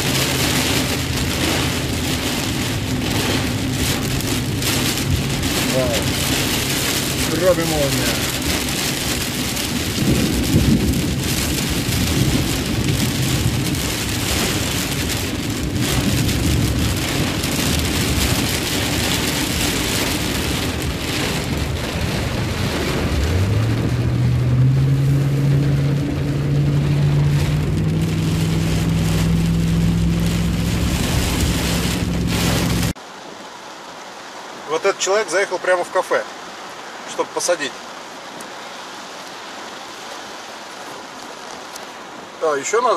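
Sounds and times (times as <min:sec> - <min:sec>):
low car engine hum: 0:00.0 - 0:34.0
heavy rain on car roof: 0:00.0 - 0:42.9.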